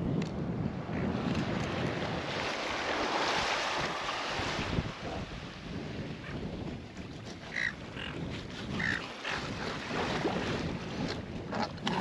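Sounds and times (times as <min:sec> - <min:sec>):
wind rumble: 0:00.0 - 0:12.0
water lapping at shore: 0:01.1 - 0:12.0
seagulls squawking: 0:07.5 - 0:08.2, 0:08.8 - 0:09.0.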